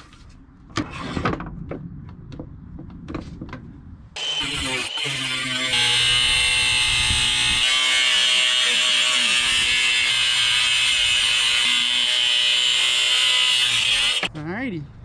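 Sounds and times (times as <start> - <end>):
angle grinder cutting sheet metal: 4.2 - 14.3.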